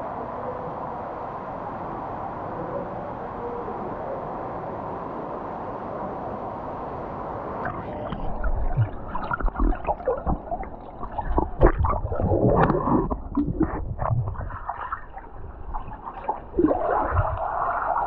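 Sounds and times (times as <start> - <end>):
underwater gurgling and sloshing: 7.5 - 18.0
underwater knocks and thumps: 8.0 - 17.6.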